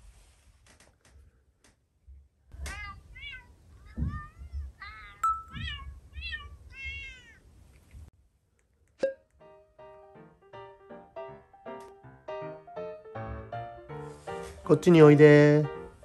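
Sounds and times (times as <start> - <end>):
cat meows from phone: 2.6 - 7.4.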